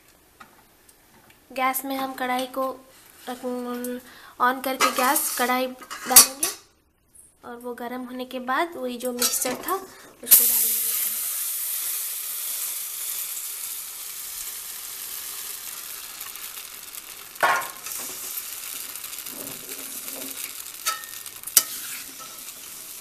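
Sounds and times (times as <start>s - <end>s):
batter sizzling in a pan: 2.8s - 6.3s, 9.2s - 23.0s.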